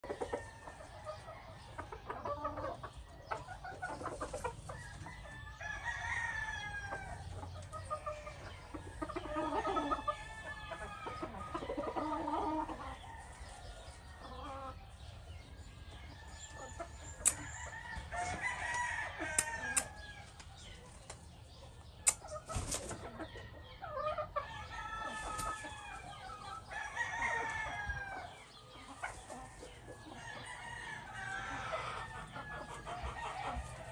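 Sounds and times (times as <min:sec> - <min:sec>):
chickens clucking: 0:00.0 - 0:33.9.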